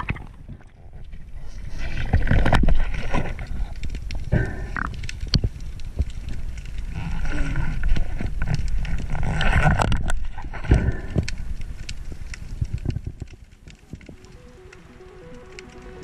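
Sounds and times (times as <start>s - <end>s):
muffled underwater rumble: 0.0s - 16.0s
underwater clicks and knocks: 2.0s - 6.7s, 7.7s - 14.4s.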